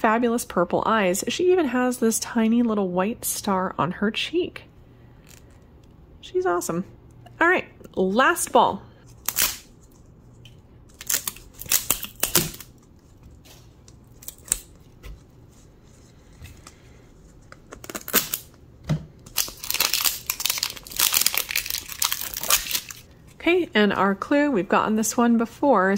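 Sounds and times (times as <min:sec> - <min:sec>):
wrapper crinkling: 0:09.1 - 0:15.0, 0:16.5 - 0:18.6, 0:19.2 - 0:23.2.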